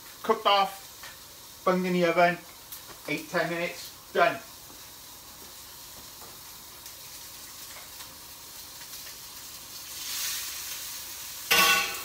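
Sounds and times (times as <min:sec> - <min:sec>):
steak sizzling in a pan: 0:00.0 - 0:12.0
faint crackles: 0:04.6 - 0:11.2.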